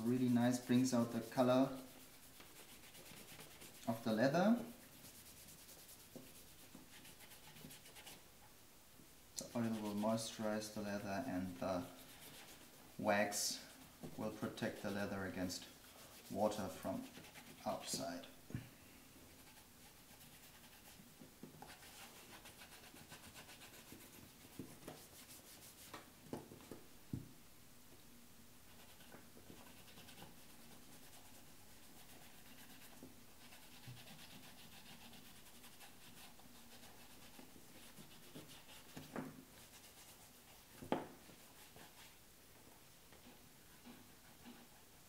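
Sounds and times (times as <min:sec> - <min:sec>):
cloth rubbing on leather: 0:04.7 - 0:08.2, 0:21.6 - 0:26.0.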